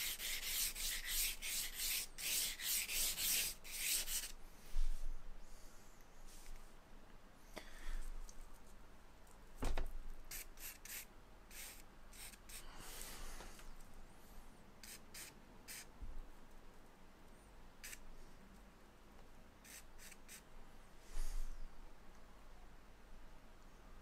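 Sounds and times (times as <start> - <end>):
charcoal scratching on paper: 0.0 - 4.4.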